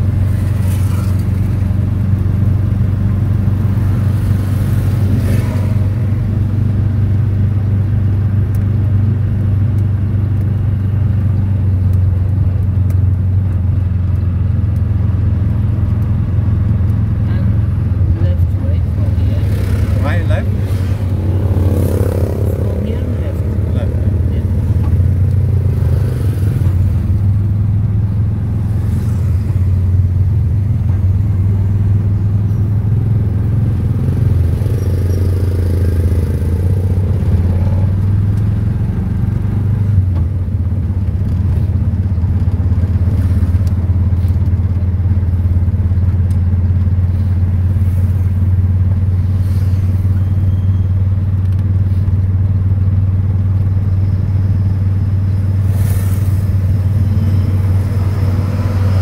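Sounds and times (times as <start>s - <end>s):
road and wind noise: 0.0s - 59.0s
small engine droning: 53.8s - 59.0s.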